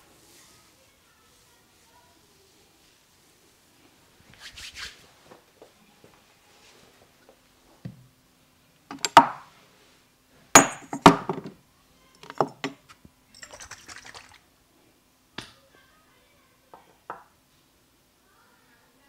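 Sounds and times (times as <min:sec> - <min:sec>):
rustling hiss: 0:00.0 - 0:07.8
sharp knocks and clinks: 0:08.9 - 0:09.4, 0:10.6 - 0:11.5, 0:12.2 - 0:14.1.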